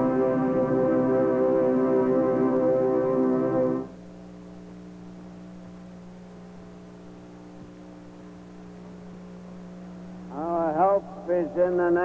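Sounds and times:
electrical mains hum: 0.0 - 12.0
man speaking: 10.3 - 12.0.

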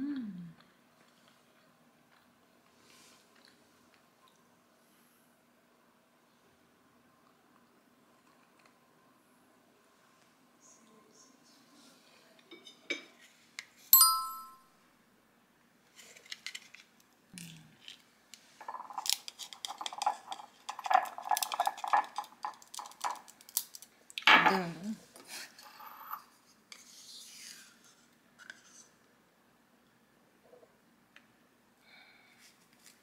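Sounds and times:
crockery clinking and clattering: 12.5 - 13.2, 18.6 - 23.2
ringing clink of crockery: 14.0 - 14.6.

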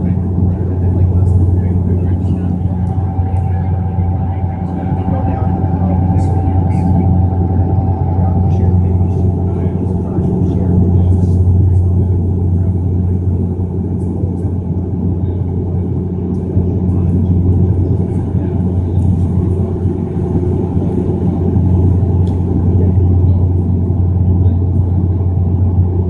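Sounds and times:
turboprop cabin drone: 0.0 - 26.0.

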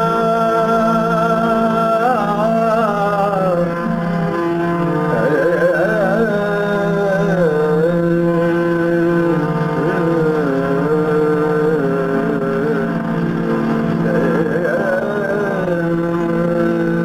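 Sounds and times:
low drone: 0.0 - 17.0.

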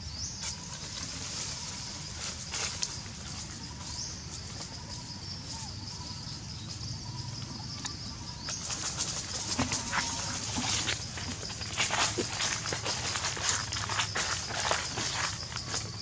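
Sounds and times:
monkeys rustling dry leaves: 0.6 - 5.8, 8.6 - 15.9.

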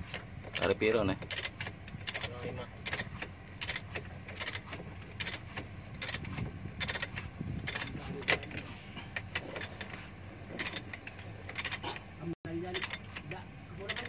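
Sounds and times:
low steady hum: 0.0 - 14.0
ratchet wrench clicking: 0.6 - 5.4, 6.0 - 8.0, 10.6 - 11.8, 12.7 - 13.2.

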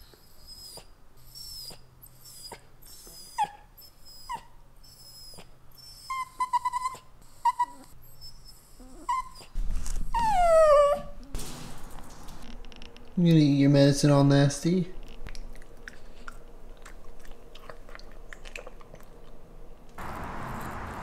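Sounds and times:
dog whining: 0.0 - 11.4.

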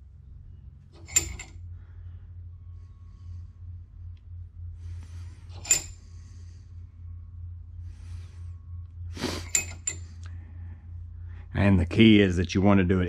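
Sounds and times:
steady low hum: 0.0 - 13.0
faint metallic scraping: 4.7 - 10.8.

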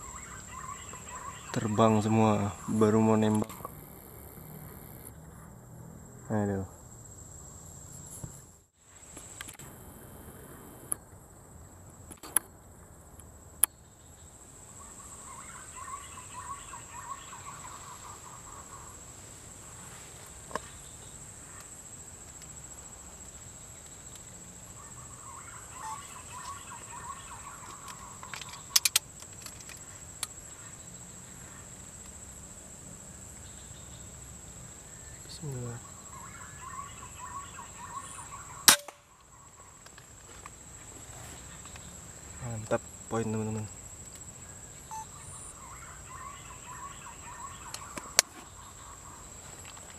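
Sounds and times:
bird calling in rapid notes: 0.0 - 3.4, 14.8 - 19.0, 24.8 - 28.8, 35.8 - 39.8, 44.9 - 49.2
high insect whine: 0.0 - 49.9
sharp clicks: 27.6 - 30.4.

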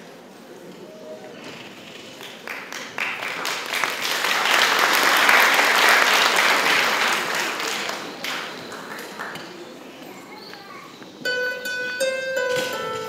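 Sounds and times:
audience applauding: 2.1 - 9.8.

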